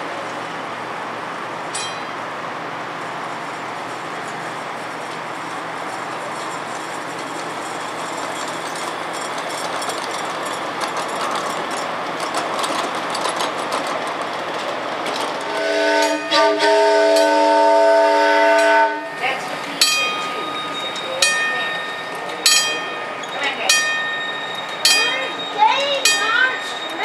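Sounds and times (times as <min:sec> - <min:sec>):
miniature train wheels clicking: 0:05.1 - 0:16.2
steam locomotive chime whistle: 0:15.5 - 0:27.0.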